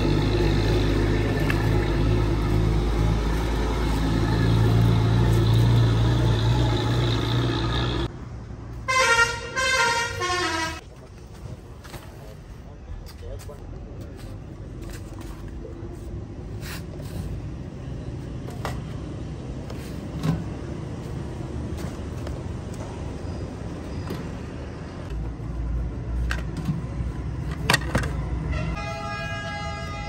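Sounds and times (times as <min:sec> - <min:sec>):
street traffic rumble: 0:00.0 - 0:30.0
vehicle horn: 0:08.8 - 0:10.8, 0:28.5 - 0:30.0.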